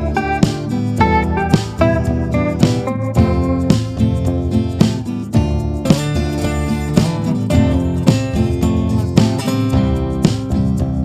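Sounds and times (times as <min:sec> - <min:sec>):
strummed guitar music with beat: 0:00.0 - 0:11.0.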